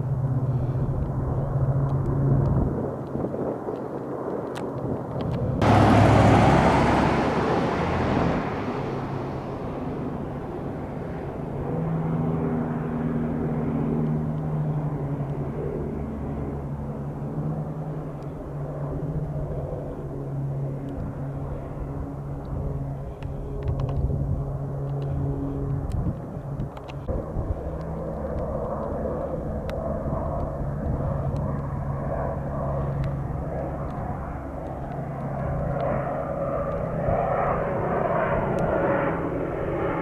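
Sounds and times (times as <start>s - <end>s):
air tanker plane droning pass: 0.0s - 40.0s
helicopter engines and rotor drone: 0.0s - 40.0s
loud rush of noise: 5.6s - 10.4s.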